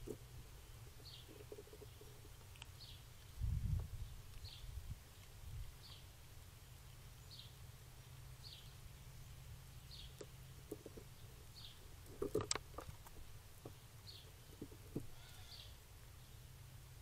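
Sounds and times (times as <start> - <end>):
bird chirping: 0.0 - 12.0, 13.6 - 16.5.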